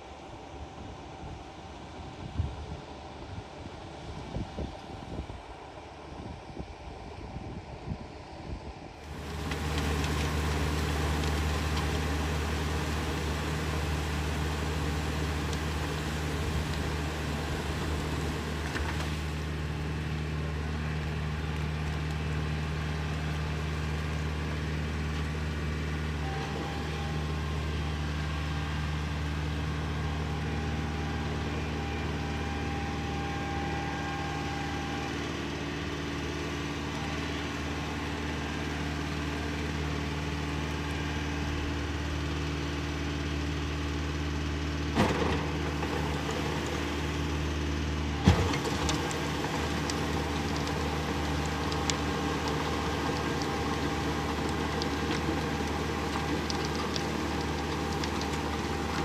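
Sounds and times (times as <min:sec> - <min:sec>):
tractor engine under load: 0:09.0 - 0:59.0
harrow churning water: 0:48.2 - 0:59.0.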